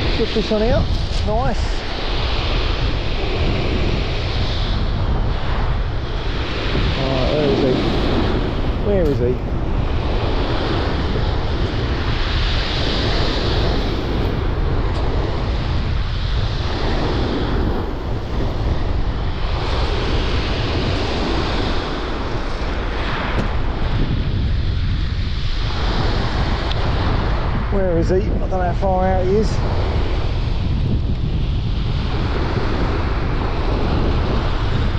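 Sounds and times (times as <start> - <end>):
surf breaking on shore: 0.0 - 34.9
wind buffeting microphone: 0.0 - 34.9.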